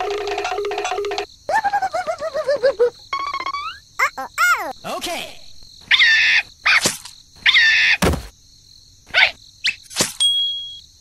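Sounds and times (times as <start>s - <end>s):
thud: 8.0s - 8.3s.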